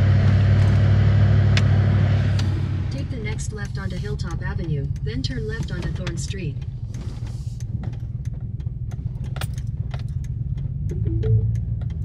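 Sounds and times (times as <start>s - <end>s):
truck engine running: 0.0s - 12.0s
light clicks and rattles: 3.5s - 11.0s.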